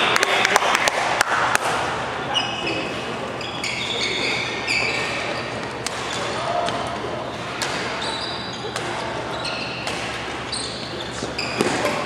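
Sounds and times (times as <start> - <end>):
scattered applause: 0.0 - 1.4
shoes squeaking on hall floor: 2.2 - 12.0.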